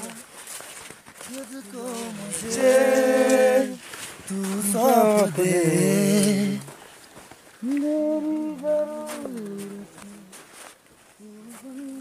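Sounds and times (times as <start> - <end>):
man humming: 7.6 - 10.4, 11.2 - 12.0.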